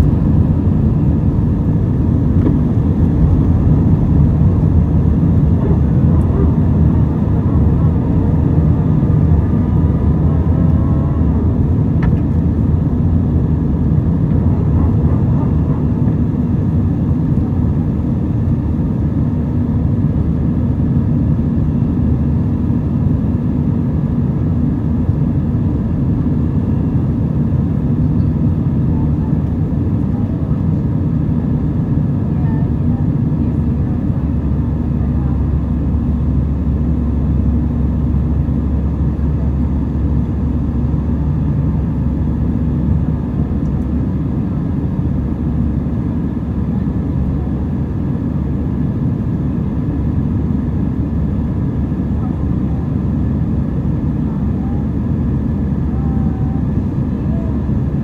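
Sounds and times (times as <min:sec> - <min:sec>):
aircraft engine rumble: 0:00.0 - 0:58.0.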